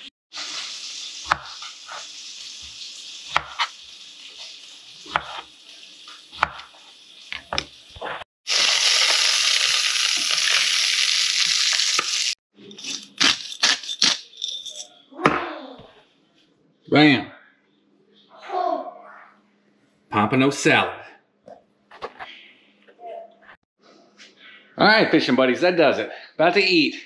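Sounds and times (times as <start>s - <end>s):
fish sizzling in a frying pan: 0.3s - 12.4s.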